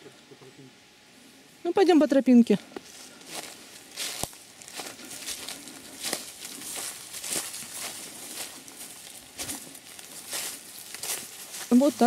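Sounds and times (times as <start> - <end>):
footsteps crunching dry leaves: 2.8 - 12.0.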